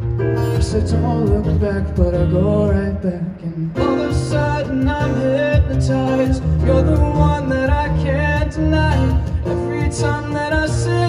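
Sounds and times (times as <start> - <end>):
acoustic guitar: 0.0 - 11.0
keyboard playing: 0.0 - 11.0
man singing: 0.4 - 11.0.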